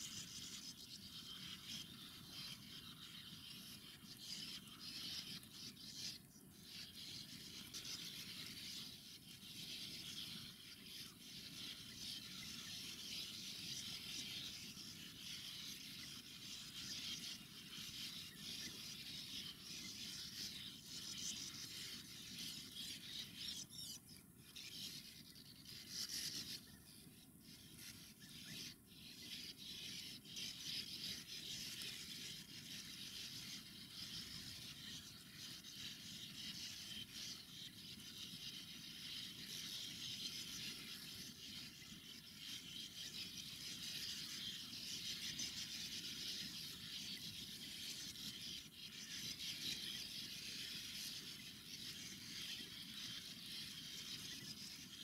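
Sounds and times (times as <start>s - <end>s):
birds twittering: 0.0s - 55.0s.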